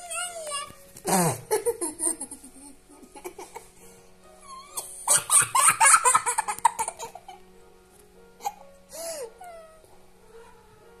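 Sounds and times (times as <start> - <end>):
girl laughing: 1.1 - 3.7, 4.6 - 7.4.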